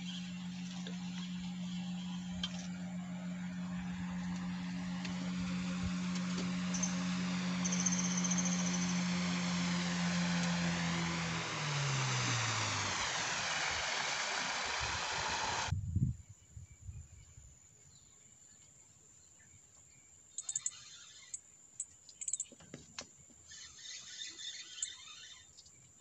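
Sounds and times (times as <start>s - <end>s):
faint bird chirps: 7.6s - 9.0s, 16.0s - 26.0s.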